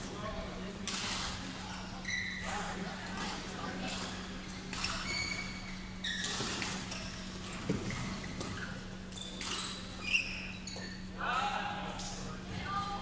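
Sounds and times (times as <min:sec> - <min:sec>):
shoes squeaking on court floor: 0:02.0 - 0:02.6, 0:04.1 - 0:11.2.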